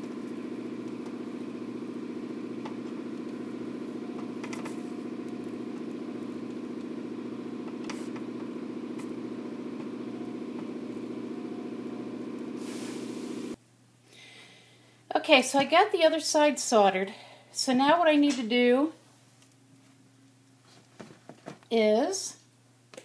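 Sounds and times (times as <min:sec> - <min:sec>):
steady machine hum: 0:00.0 - 0:15.4.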